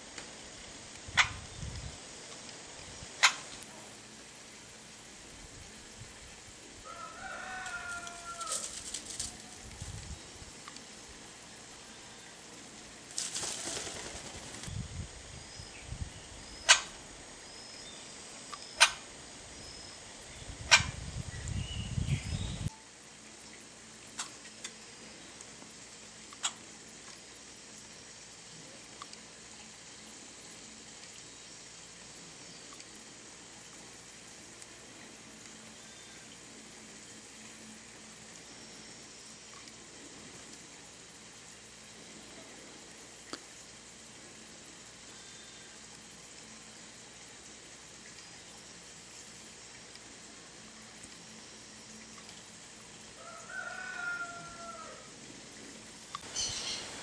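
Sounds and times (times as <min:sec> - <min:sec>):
sharp clicks: 0:03.0 - 0:03.6, 0:16.7 - 0:17.0.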